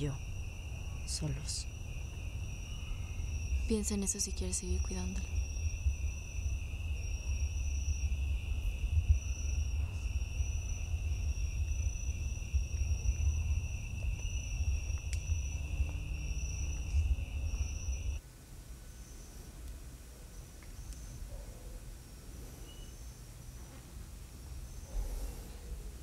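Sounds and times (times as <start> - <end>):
low rumble: 0.0 - 18.2
crickets chirping: 0.0 - 26.0.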